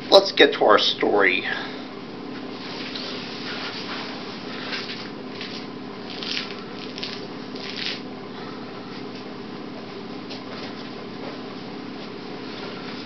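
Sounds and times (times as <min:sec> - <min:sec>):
steady low hum: 0:00.0 - 0:13.0
rustling scuffing noises: 0:02.3 - 0:05.6, 0:08.9 - 0:13.0.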